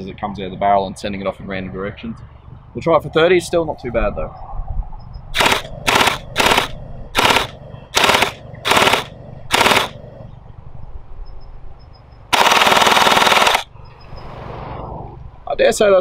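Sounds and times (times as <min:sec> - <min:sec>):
gel blaster shots: 0:05.4 - 0:10.0, 0:12.3 - 0:13.7.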